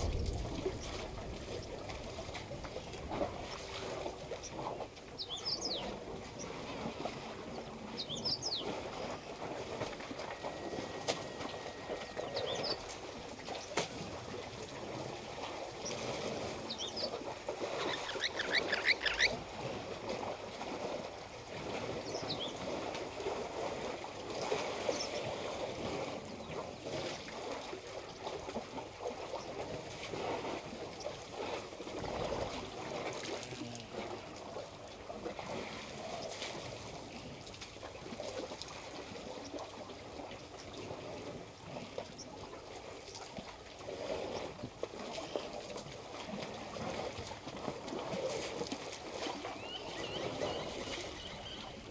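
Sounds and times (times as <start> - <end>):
water sloshing and splashing: 0.0 - 51.9
bird chirps: 10.5 - 12.8, 17.8 - 19.3.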